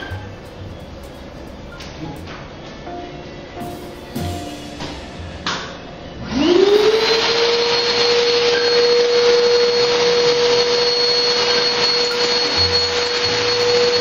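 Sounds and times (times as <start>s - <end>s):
vacuum motor whine: 6.2s - 14.0s.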